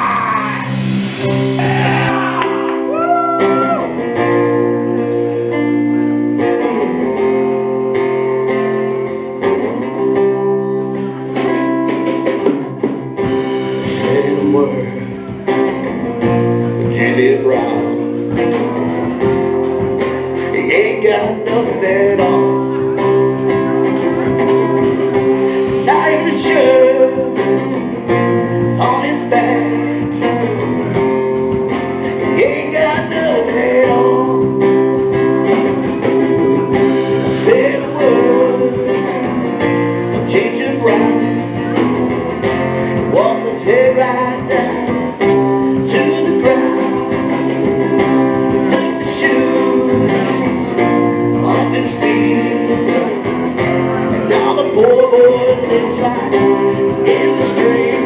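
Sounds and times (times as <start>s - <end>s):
man singing: 0.0s - 4.0s, 13.7s - 18.7s, 20.4s - 31.0s, 32.0s - 42.0s, 43.0s - 58.0s
live rock band playing: 0.0s - 58.0s.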